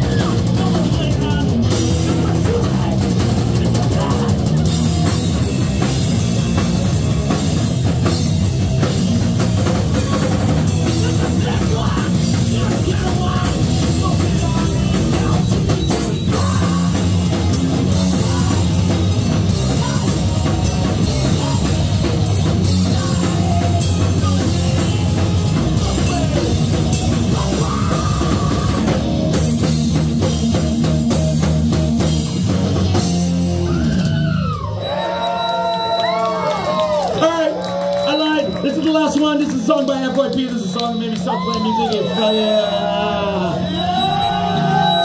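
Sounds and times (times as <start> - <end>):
drum kit: 0.0 - 35.4
bass guitar: 0.0 - 45.0
electric guitars: 0.0 - 45.0.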